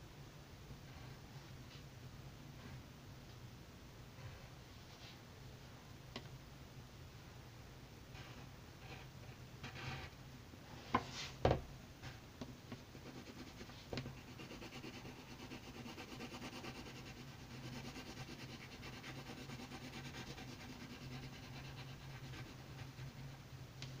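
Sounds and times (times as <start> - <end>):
pencil scratching on paper: 12.9 - 23.4.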